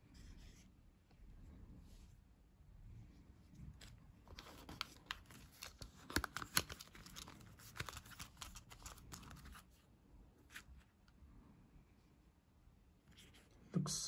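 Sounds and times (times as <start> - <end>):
plastic film crinkling: 4.2 - 9.8.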